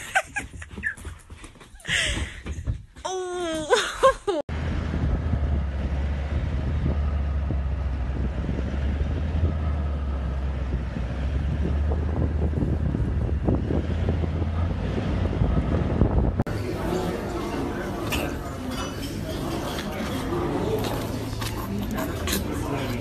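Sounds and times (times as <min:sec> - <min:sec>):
vehicle engine hum: 0:04.5 - 0:23.0
wind on microphone: 0:10.5 - 0:16.5.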